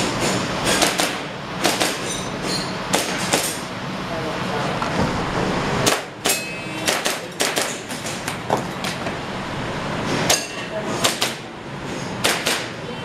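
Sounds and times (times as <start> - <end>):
airsoft pistol shots: 12.2 - 12.7.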